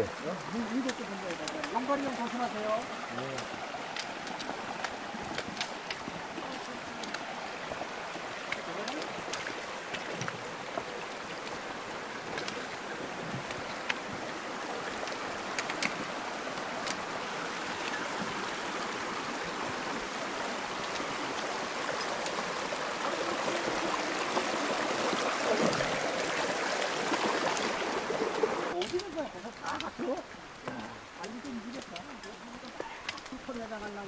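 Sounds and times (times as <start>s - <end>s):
stream rushing over rocks: 0.0s - 34.0s.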